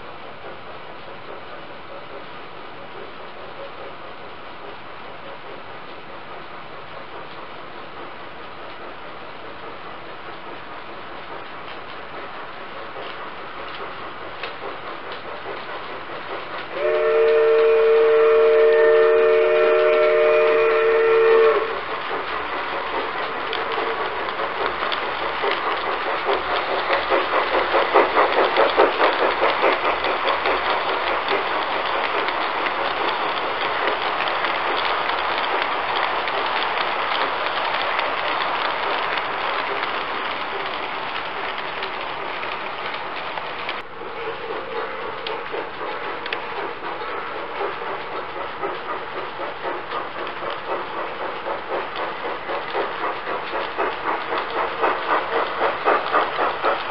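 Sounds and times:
model train cars rattling past: 0:00.0 - 0:56.9
model train chime whistle: 0:16.8 - 0:21.7.

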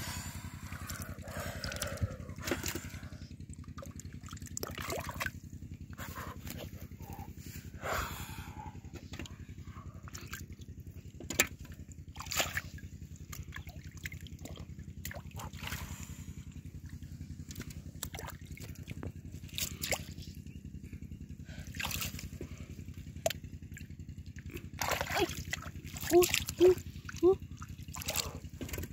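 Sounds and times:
steady low drone: 0:00.0 - 0:28.9
hands splashing in muddy water: 0:03.8 - 0:05.4, 0:11.3 - 0:16.3, 0:16.9 - 0:20.3, 0:21.6 - 0:22.6, 0:23.2 - 0:28.9.

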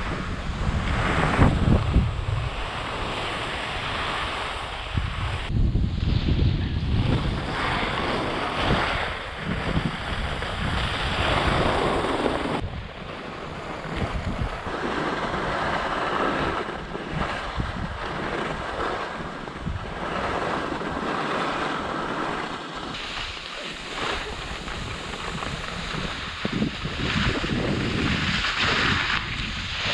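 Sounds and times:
skis sliding over snow: 0:00.0 - 0:29.9
wind buffeting microphone: 0:00.0 - 0:29.9.

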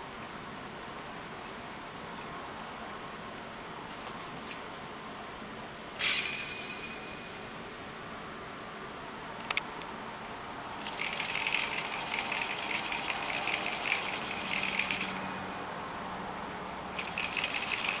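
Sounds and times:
toy motors and gears whirring: 0:10.7 - 0:15.8, 0:17.0 - 0:18.0.

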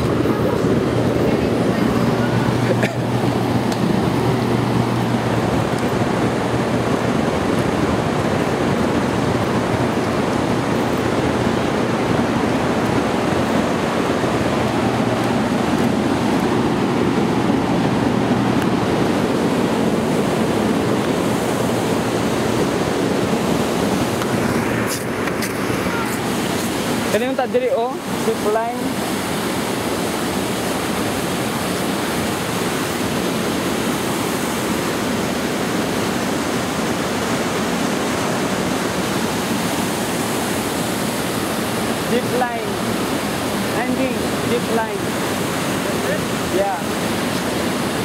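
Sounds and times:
low steady hum: 0:00.0 - 0:28.1
waterfall and river rushing: 0:00.0 - 0:48.0.

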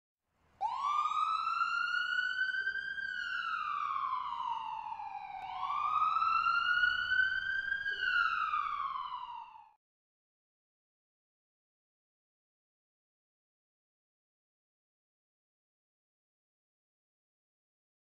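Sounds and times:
siren wailing: 0:00.6 - 0:09.8.

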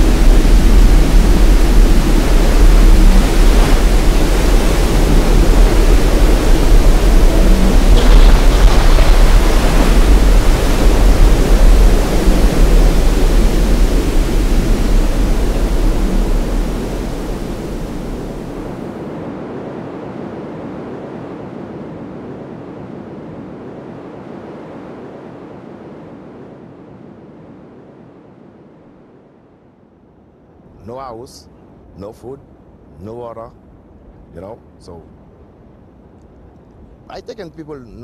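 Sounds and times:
wind buffeting microphone: 0:00.0 - 0:28.4
strong wind around a house: 0:00.0 - 0:37.3.

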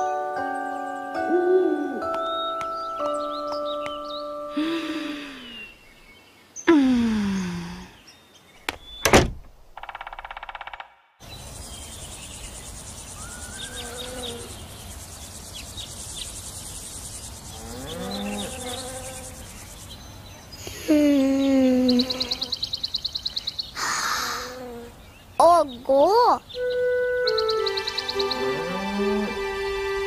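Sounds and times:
bird calls: 0:00.1 - 0:04.6, 0:09.8 - 0:29.4
crickets chirring: 0:09.8 - 0:20.8.

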